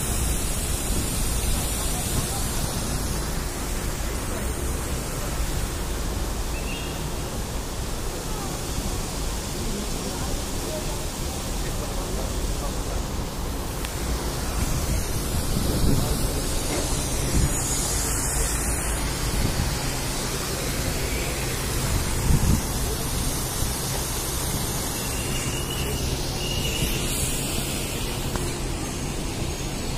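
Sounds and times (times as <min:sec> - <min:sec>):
faint voices of passers-by: 0:00.0 - 0:29.9
road traffic: 0:00.0 - 0:29.9
wind buffeting microphone: 0:14.2 - 0:18.0, 0:21.8 - 0:23.2.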